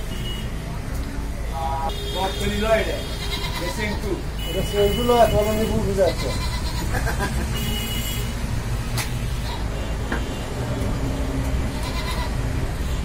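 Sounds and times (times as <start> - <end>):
street traffic rumble: 0.0 - 13.0.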